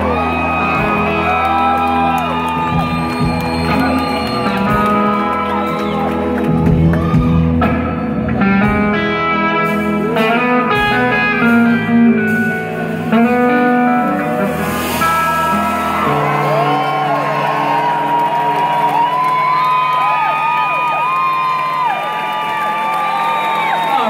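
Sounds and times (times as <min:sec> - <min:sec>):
steady bass line: 0:00.0 - 0:18.4.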